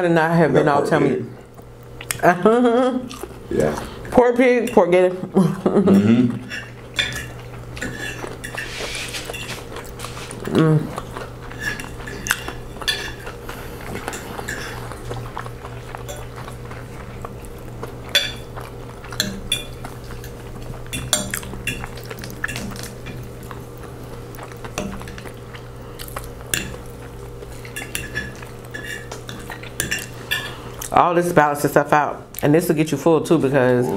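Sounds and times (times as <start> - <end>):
forks clinking on ceramic plates: 5.9 - 9.8, 11.5 - 13.4, 14.0 - 14.8, 18.1 - 18.6, 19.2 - 23.2, 26.5 - 26.8, 27.6 - 30.6.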